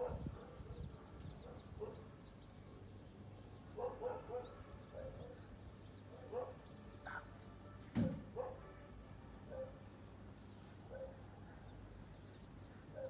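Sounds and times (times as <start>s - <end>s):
faint high whine: 0.0s - 13.0s.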